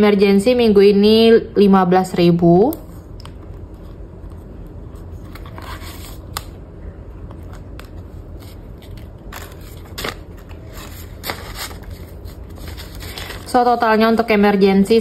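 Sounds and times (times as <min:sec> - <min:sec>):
banknotes and plastic pouch rustling: 0:07.3 - 0:14.4.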